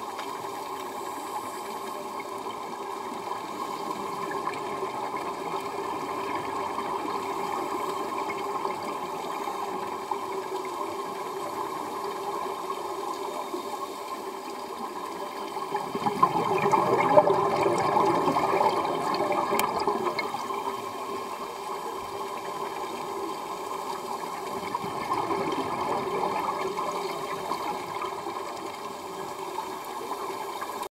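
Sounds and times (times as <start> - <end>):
muffled hiss: 0.0 - 30.9
underwater air bubbling: 14.0 - 30.9.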